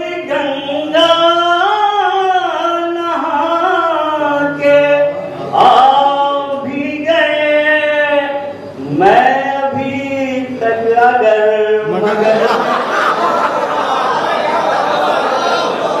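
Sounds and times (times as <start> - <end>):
elderly man chanting melodically: 0.0 - 12.4.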